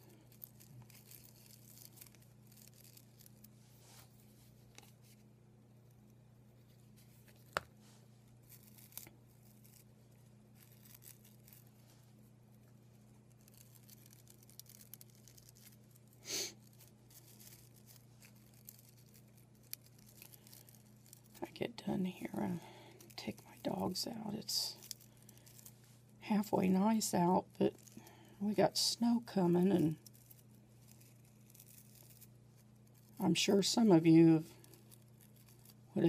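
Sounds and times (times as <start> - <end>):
low steady hum: 0.0 - 36.0.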